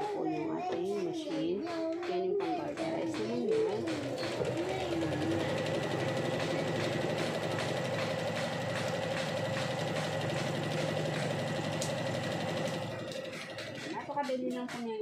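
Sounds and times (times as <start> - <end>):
electric sewing machine running: 3.1 - 14.1.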